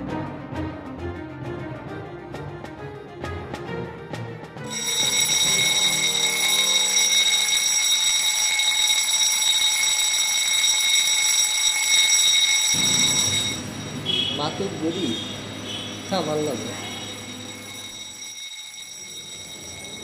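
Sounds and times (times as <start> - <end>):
background music: 0.0 - 11.0, 12.7 - 20.0
shrill electronic tone: 4.7 - 20.0.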